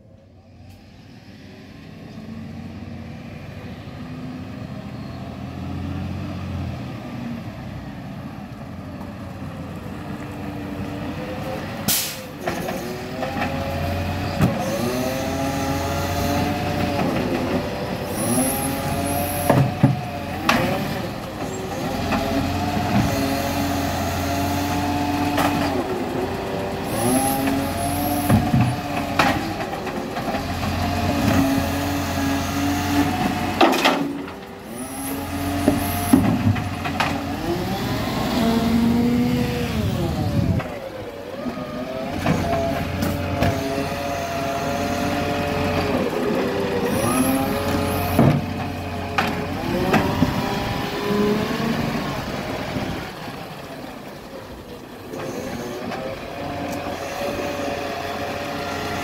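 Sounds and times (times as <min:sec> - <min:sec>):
garbage truck diesel engine: 0:00.0 - 0:59.0
short air hisses: 0:11.9 - 0:12.3
air brake hiss: 0:11.9 - 0:12.4.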